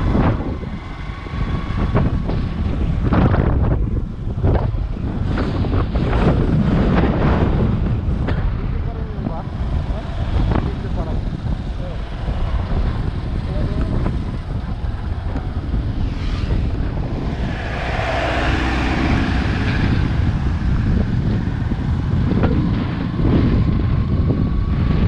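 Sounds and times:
road noise: 0.0 - 25.0
wind buffeting microphone: 0.0 - 25.0
motorcycle engine running: 9.0 - 16.0.

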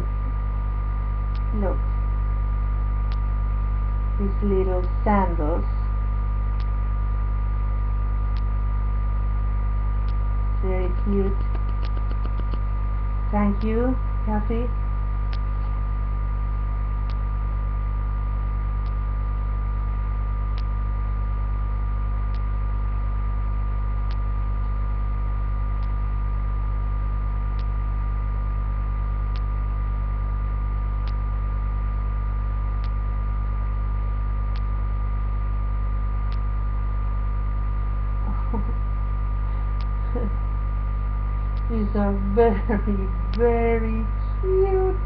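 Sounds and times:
electrical mains hum: 0.0 - 45.0
faint regular ticks: 8.3 - 8.6, 10.0 - 12.7, 17.0 - 17.4, 24.0 - 24.4, 25.6 - 26.1, 27.4 - 27.8, 29.3 - 29.6, 31.0 - 31.4, 32.7 - 33.1, 34.5 - 34.8, 36.2 - 36.6, 39.6 - 40.2.

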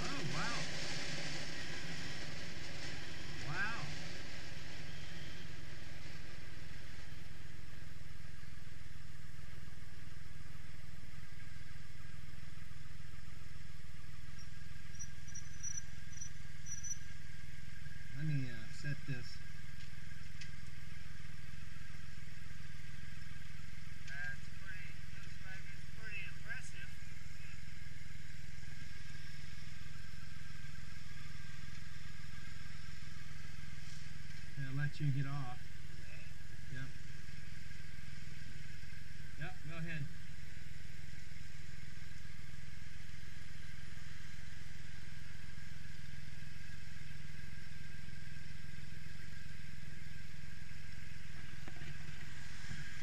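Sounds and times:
motorcycle engine running steadily: 0.0 - 53.0.

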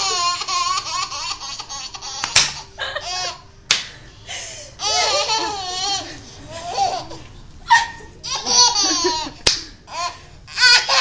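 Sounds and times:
baby laughing: 0.0 - 3.4, 4.8 - 11.0
sharp smacks: 2.2 - 2.6, 3.7 - 4.0, 9.5 - 9.7.

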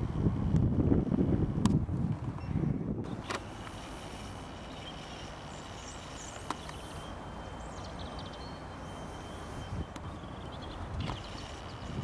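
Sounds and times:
outdoor background noise: 0.0 - 12.0
faint high chirps: 4.6 - 12.0.

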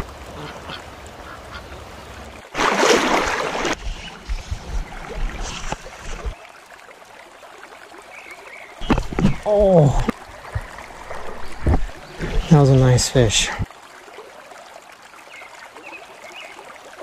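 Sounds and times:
creek water rushing: 0.0 - 17.0
low bumps: 8.8 - 13.7.

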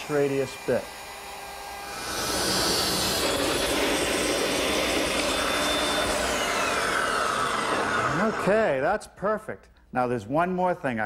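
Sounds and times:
table saw cutting wood: 0.0 - 8.6.

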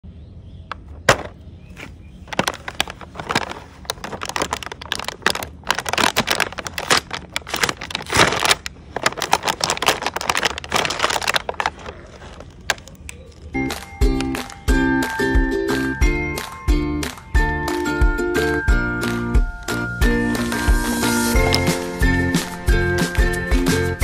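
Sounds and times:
plastic packaging crinkling: 1.1 - 14.7, 21.0 - 22.2.

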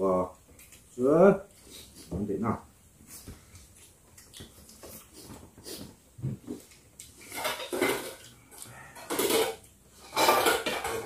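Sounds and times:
mouth noises while eating: 0.2 - 2.2, 3.0 - 7.4.

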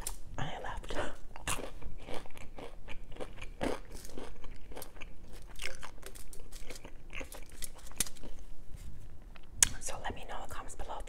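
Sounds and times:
crunchy chewing: 0.8 - 8.4.

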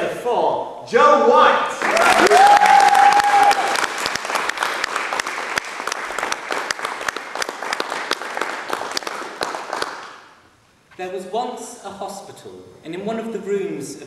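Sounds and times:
audience applauding: 1.8 - 10.3.

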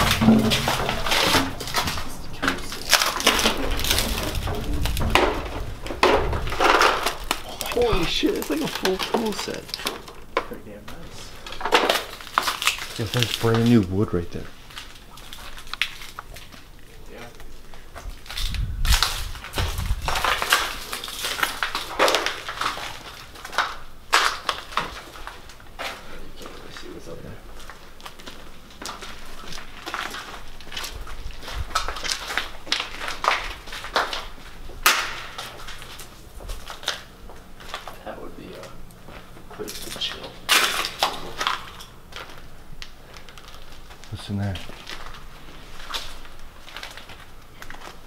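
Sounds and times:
debris crackling and scraping: 0.0 - 48.0
footsteps crunching over debris: 0.0 - 48.0.

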